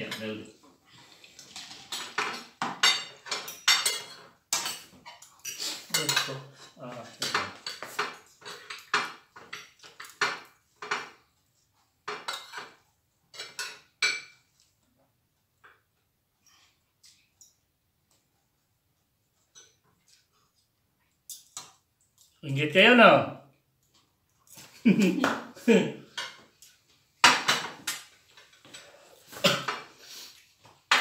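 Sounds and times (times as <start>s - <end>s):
dishes and cutlery clattering: 1.3s - 11.3s, 12.0s - 14.6s, 19.4s - 20.4s, 26.1s - 30.0s, 30.7s - 31.0s.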